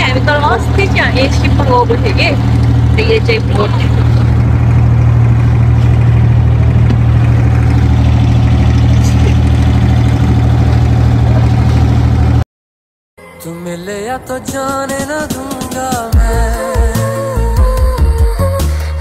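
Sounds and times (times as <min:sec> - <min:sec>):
boat diesel engine droning: 0:00.0 - 0:12.4.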